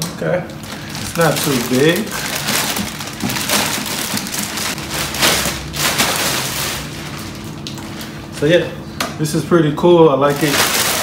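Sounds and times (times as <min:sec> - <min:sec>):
plastic bag crinkling: 0:00.5 - 0:08.2, 0:10.2 - 0:11.0.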